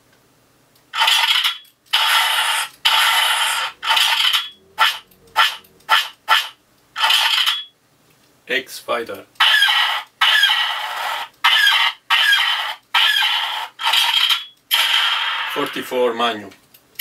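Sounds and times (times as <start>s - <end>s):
electronic blaster shots: 1.0s - 7.6s, 9.4s - 15.8s.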